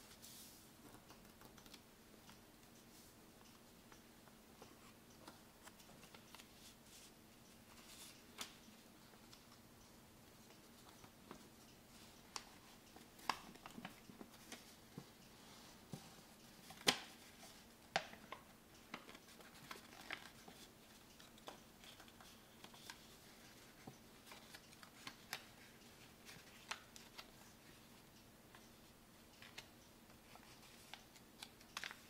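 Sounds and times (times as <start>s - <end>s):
paper crinkling as it is folded: 16.5s - 27.8s, 29.4s - 32.0s.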